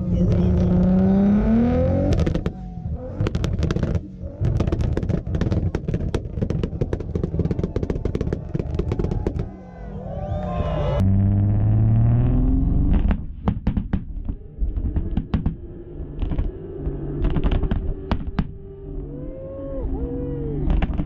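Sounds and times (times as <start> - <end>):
engine at high revs: 0.0 - 9.5
exhaust pops and bangs: 1.9 - 9.5, 12.9 - 18.6, 20.6 - 21.0.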